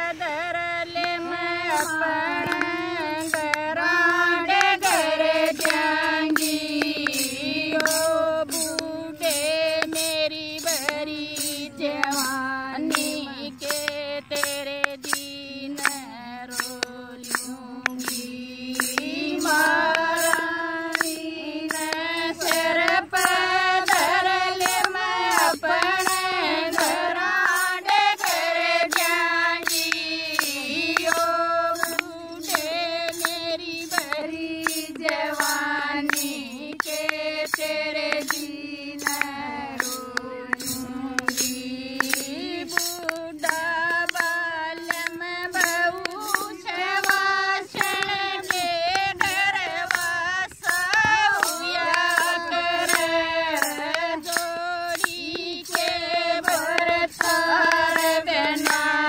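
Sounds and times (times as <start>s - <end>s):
women singing folk song: 0.0s - 59.0s
hand claps: 0.9s - 59.0s.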